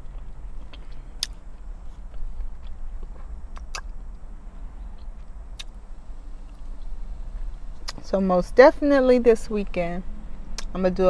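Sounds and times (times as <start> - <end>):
close chewing: 0.0 - 4.2
wet mouth clicks: 2.1 - 4.0.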